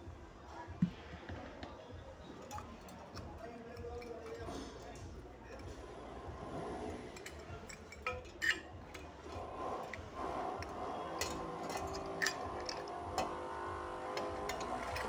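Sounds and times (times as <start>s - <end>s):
metal frame parts clicking: 7.1s - 15.0s.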